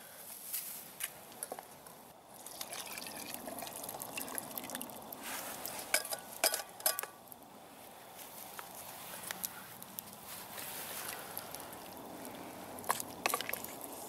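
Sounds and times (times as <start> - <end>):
liquid trickling into pot: 2.3 - 7.1
metal pan clinking against pot: 5.9 - 7.1.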